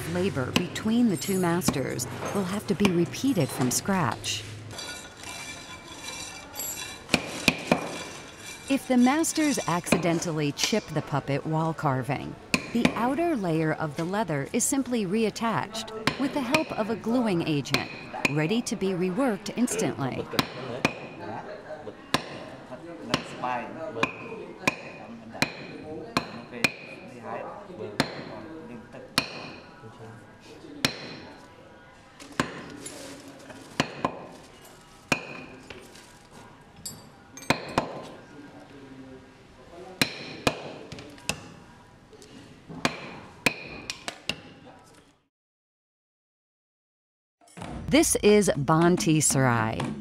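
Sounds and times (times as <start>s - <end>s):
hammer striking metal chisel: 4.8s - 8.7s
mallet striking chisel: 6.8s - 8.2s.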